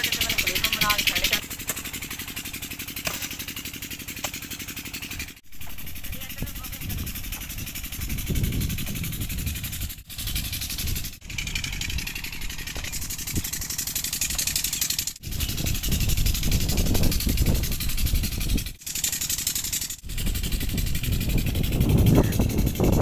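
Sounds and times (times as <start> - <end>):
diesel pump engine running: 0.0 - 23.0.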